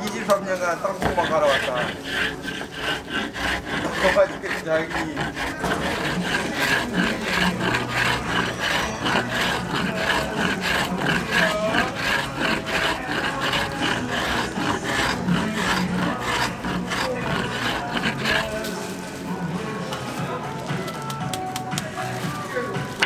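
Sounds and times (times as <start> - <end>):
hand plane rasping brittle: 0.0 - 19.3.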